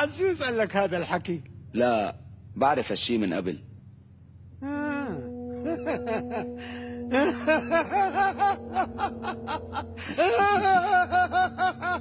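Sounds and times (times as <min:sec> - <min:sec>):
held music tone: 0:04.6 - 0:12.0
man laughing: 0:05.4 - 0:12.0.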